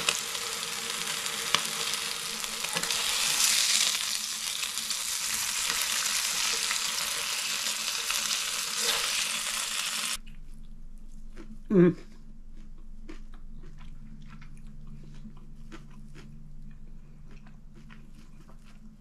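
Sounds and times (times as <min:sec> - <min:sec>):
egg and bacon sizzling in pan: 0:00.0 - 0:10.2.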